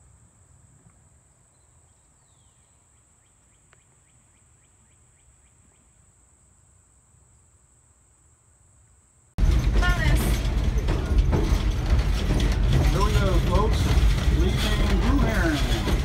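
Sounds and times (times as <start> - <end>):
bird chirping: 1.5 - 6.2
low rumble: 9.4 - 16.0.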